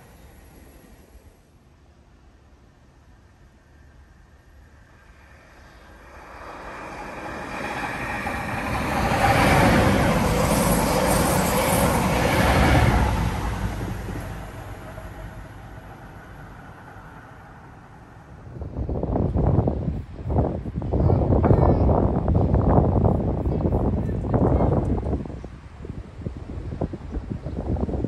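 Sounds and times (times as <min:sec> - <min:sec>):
passenger train passing: 0:00.0 - 0:28.0.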